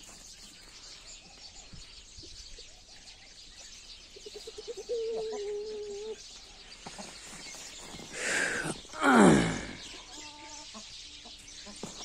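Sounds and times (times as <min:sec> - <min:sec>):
small birds chirping: 0:00.0 - 0:12.0
chicken clucking and calling: 0:04.1 - 0:12.0.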